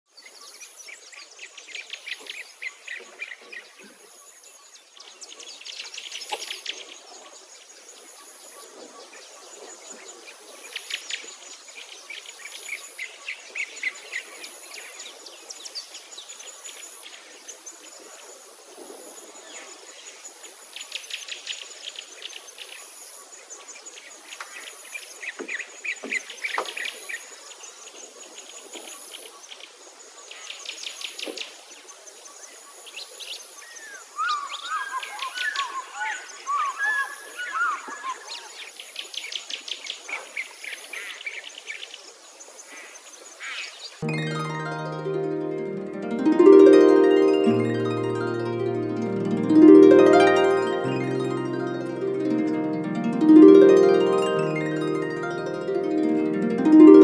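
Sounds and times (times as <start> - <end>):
birds singing rapid trills: 33.6 - 41.8.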